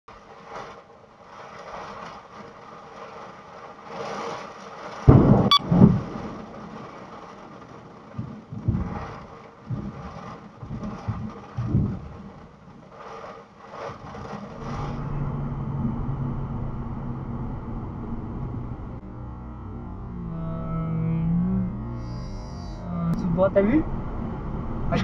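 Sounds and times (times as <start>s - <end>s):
heavy rain on car: 0.1s - 17.6s
car engine and road hum: 0.1s - 25.0s
low thumps and rumbles: 0.1s - 25.0s.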